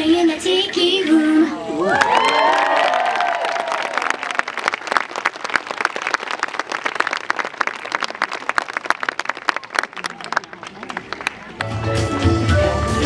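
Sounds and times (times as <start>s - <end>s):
audience applauding: 1.8s - 11.8s.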